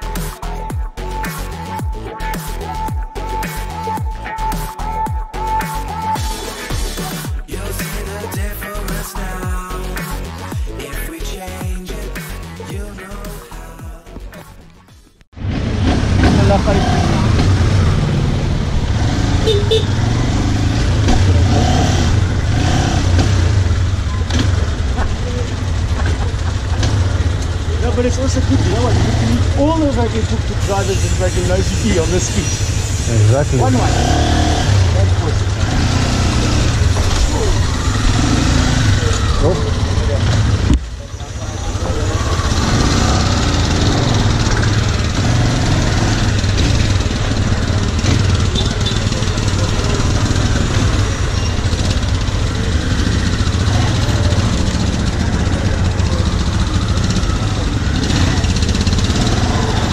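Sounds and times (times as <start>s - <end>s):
motorcycle engine at low revs: 15.7s - 31.7s, 41.7s - 59.9s.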